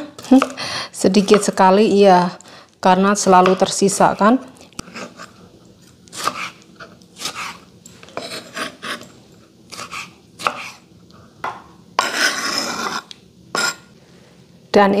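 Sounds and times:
knife blade scraping board: 6.1s - 9.1s, 9.7s - 10.8s, 12.0s - 13.8s
knife chopping on wooden board: 6.2s - 6.6s, 9.7s - 10.8s.

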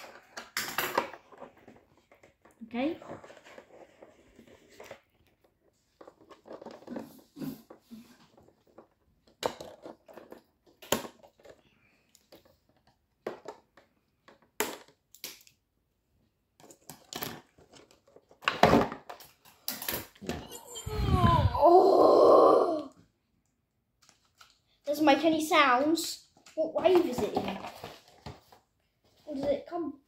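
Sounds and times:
packaging crinkling and rustling: 26.5s - 28.7s.

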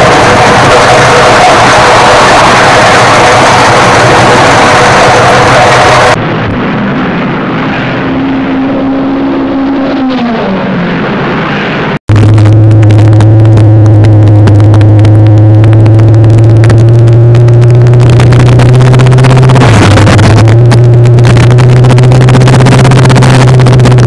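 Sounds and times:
car engine running: 0.0s - 6.7s, 12.1s - 24.0s.

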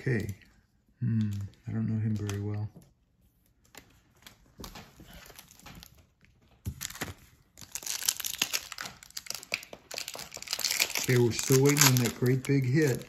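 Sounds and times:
trading cards rustling: 0.0s - 2.7s, 3.5s - 13.0s
foil wrapper crinkling: 6.7s - 13.0s.

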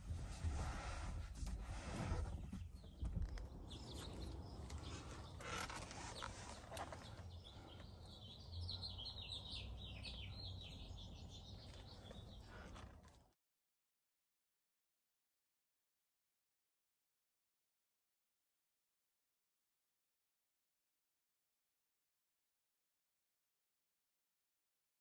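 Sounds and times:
small birds chirping: 1.5s - 13.3s.

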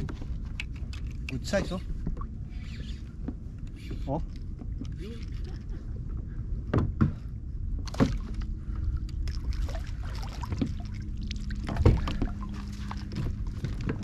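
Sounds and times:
water lapping around a kayak: 0.0s - 14.0s
wind rumble on microphone: 0.0s - 14.0s
sharp knocks on boat: 6.7s - 8.4s, 11.6s - 12.4s.

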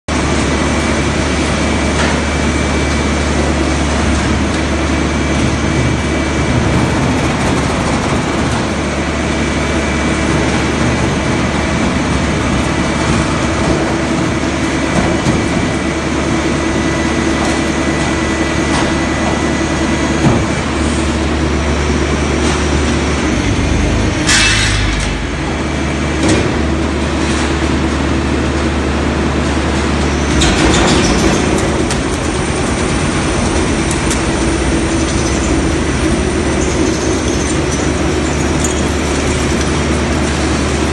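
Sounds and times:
metal grinding and creaking: 29.4s - 40.9s
hydraulic drive droning: 30.0s - 40.9s.

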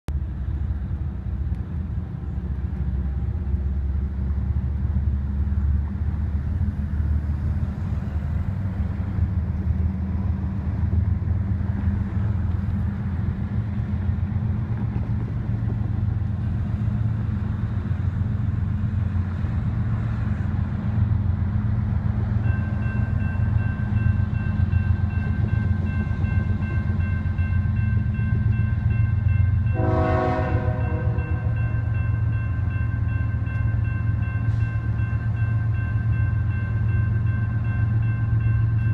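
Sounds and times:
crossing bells ringing: 22.4s - 38.9s
train horn blast: 29.6s - 31.7s.

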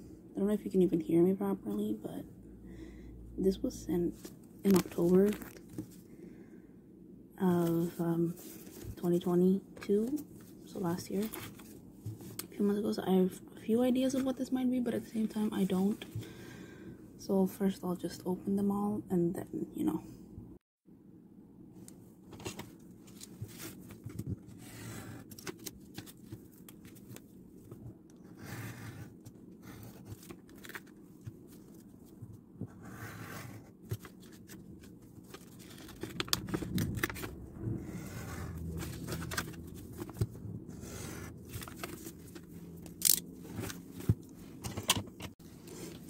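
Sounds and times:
low steady hum: 0.0s - 46.0s
envelopes being torn open: 4.7s - 5.8s, 29.9s - 31.9s, 33.8s - 37.4s, 38.6s - 40.3s, 41.4s - 44.1s.

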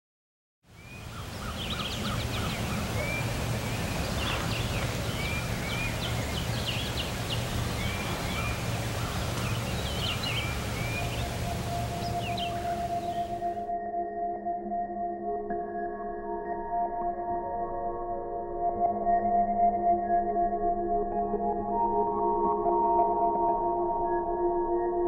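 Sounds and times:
songbirds chirping and whistling: 0.8s - 13.6s.

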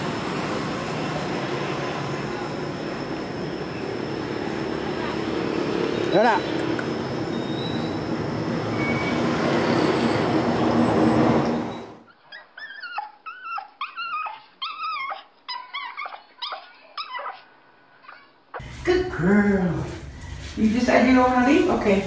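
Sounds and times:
street traffic rushing: 0.0s - 12.1s
small dog whining: 12.1s - 18.4s.

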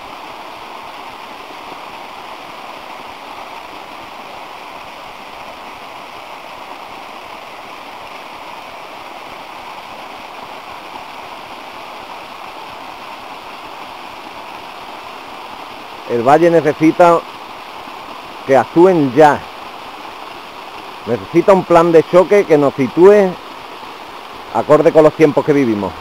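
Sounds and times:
water rushing over stones: 0.0s - 26.0s.

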